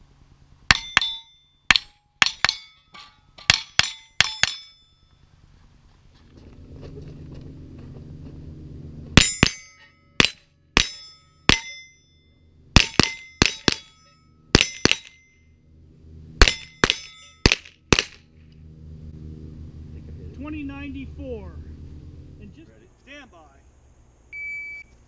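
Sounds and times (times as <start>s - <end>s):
metallic ring of steel targets: 0.7s - 5.3s, 9.2s - 15.7s, 16.4s - 18.4s
rifle shots: 16.4s - 18.2s.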